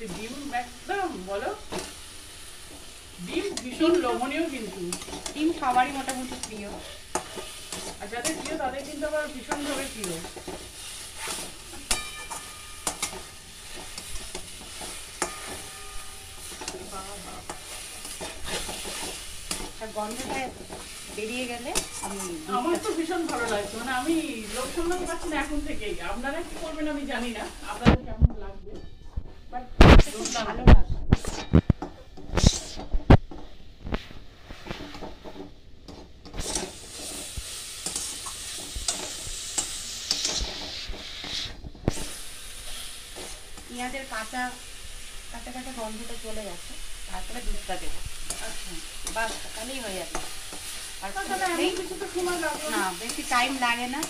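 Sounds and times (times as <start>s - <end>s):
spatula scraping wok: 0.0s - 54.0s
steady sizzle: 0.0s - 54.0s
spatula clinking on wok: 11.8s - 18.3s.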